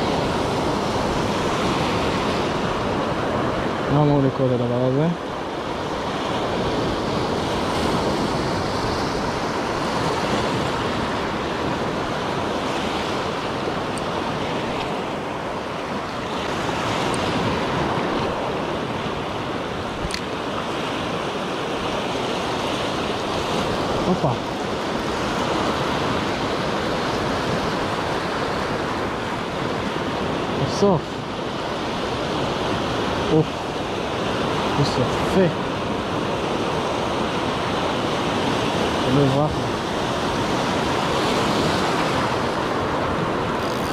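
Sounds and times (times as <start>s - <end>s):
sharp click: 20.0s - 20.3s.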